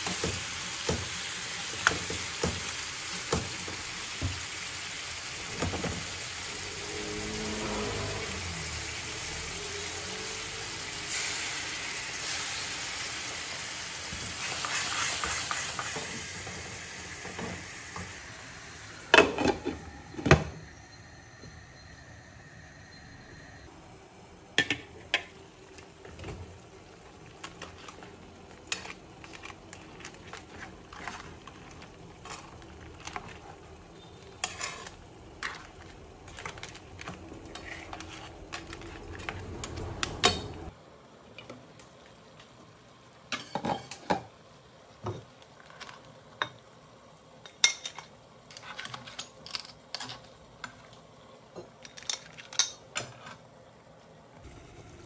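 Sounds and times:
sauce simmering hiss: 2.6 - 19.2.

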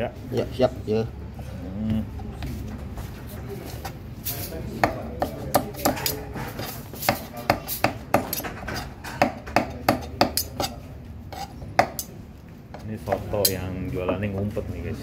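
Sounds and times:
knife chopping on board: 4.8 - 10.5.

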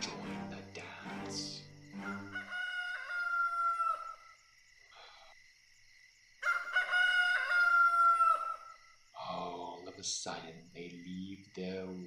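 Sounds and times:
rooster crowing: 1.7 - 4.4, 6.4 - 8.8.

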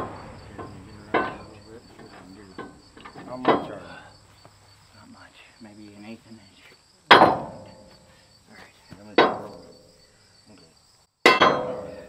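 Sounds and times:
hammer striking steel frame: 0.0 - 3.8, 7.1 - 7.9, 9.2 - 9.6, 11.3 - 11.9.

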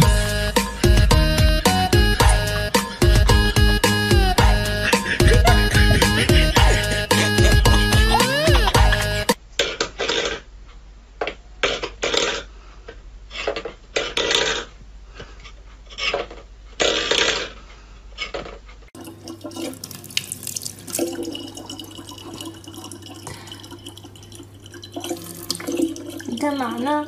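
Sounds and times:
faucet water running into plastic bottle: 19.0 - 27.0.

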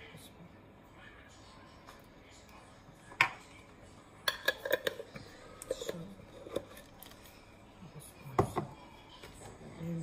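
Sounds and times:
utensils clinking over steel bowl: 4.2 - 7.2.

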